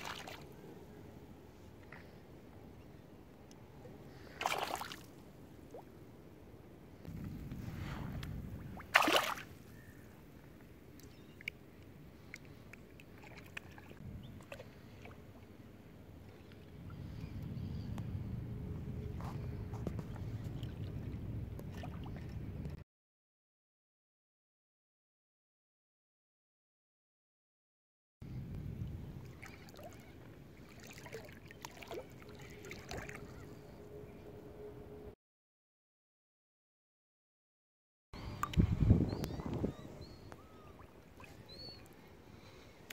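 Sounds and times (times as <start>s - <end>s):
water lapping: 0.0s - 0.5s, 4.1s - 5.9s, 7.6s - 15.6s, 29.2s - 33.8s, 39.3s - 42.9s
water sloshing: 0.0s - 0.5s, 4.2s - 5.8s, 7.6s - 9.7s, 12.2s - 15.4s, 29.2s - 33.6s
fish splash: 4.3s - 5.1s, 8.8s - 9.5s
wind rumbling on microphone: 7.0s - 10.1s, 13.9s - 22.8s, 28.2s - 30.6s, 38.2s - 41.8s.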